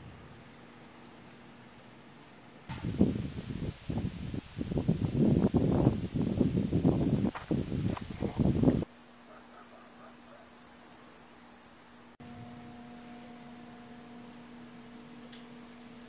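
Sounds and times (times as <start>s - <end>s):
faint steady hum: 0.0s - 16.0s
crickets chirring: 2.7s - 12.2s.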